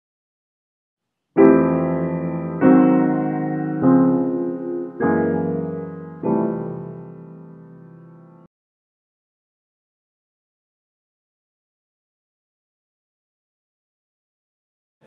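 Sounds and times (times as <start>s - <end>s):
slow piano chords: 1.4s - 8.5s.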